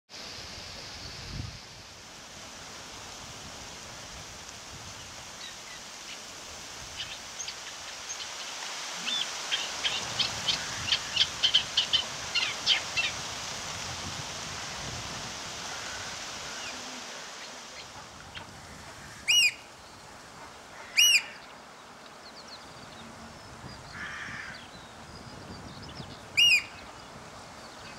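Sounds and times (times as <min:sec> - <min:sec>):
steady background hiss: 0:00.1 - 0:27.9
loud bird calls: 0:15.6 - 0:21.8, 0:22.4 - 0:27.1.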